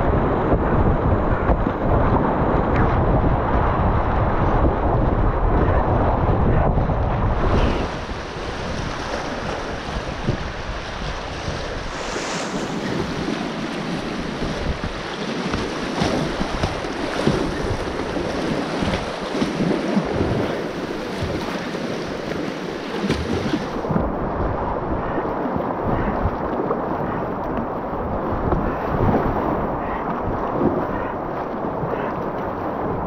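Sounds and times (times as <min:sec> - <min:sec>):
wind buffeting microphone: 0:00.0 - 0:33.0
paddle splashing: 0:07.4 - 0:33.0.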